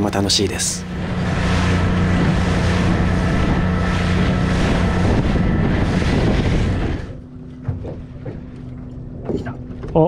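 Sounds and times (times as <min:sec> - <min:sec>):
motorboat engine hum: 0:00.0 - 0:10.0
water splashing off hull: 0:00.0 - 0:10.0
wind buffeting microphone: 0:00.9 - 0:10.0.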